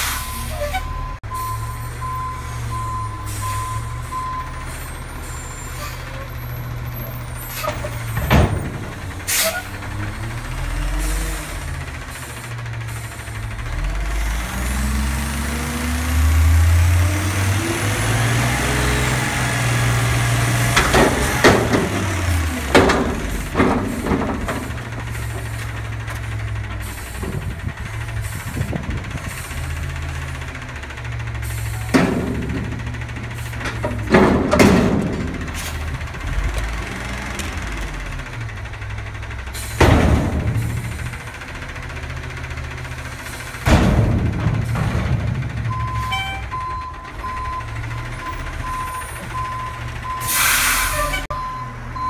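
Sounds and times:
diesel truck engine revving: 0.0 - 52.0
loud metal bangs: 7.7 - 9.3, 19.4 - 26.0, 31.8 - 36.5, 39.0 - 46.6.

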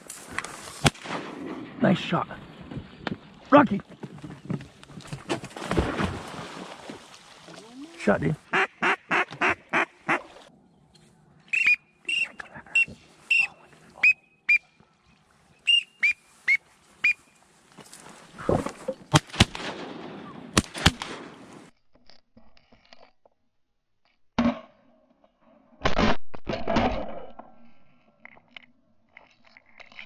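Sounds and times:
shotgun shots: 0.8 - 1.8, 19.1 - 21.5
duck whistle notes: 11.5 - 14.7, 15.6 - 17.4.

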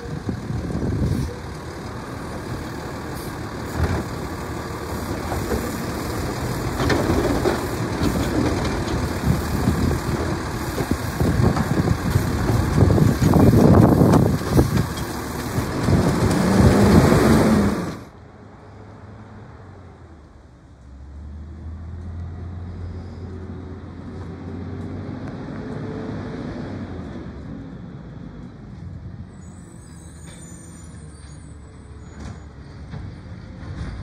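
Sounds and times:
garbage truck engine running: 0.0 - 18.1
clunks and rattles of trash cart: 5.1 - 18.0, 32.2 - 34.0.

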